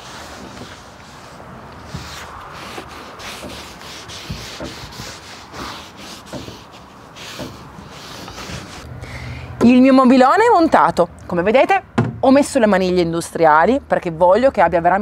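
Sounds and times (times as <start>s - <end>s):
cloth wiping over sanded wood: 0.0s - 8.9s.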